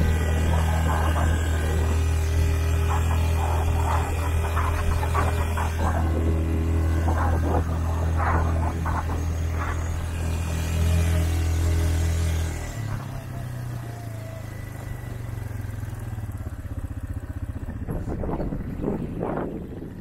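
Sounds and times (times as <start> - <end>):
quad bike engine running: 0.0 - 20.0.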